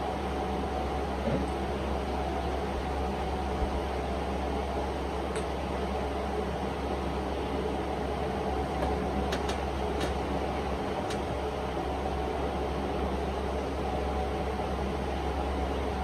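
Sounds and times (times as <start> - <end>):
mechanical hum: 0.0 - 16.0.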